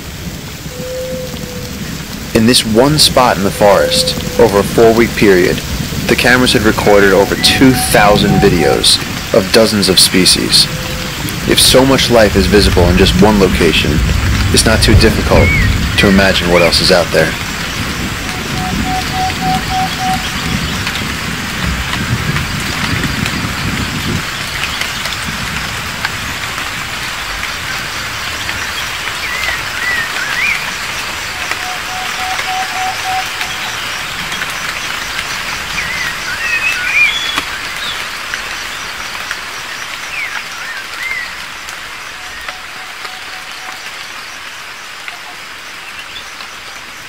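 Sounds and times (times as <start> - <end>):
dense rainforest hiss: 0.0 - 47.0
rapid tooting notes: 2.4 - 12.1, 18.3 - 20.7
chirping calls: 16.6 - 20.9, 28.4 - 34.7.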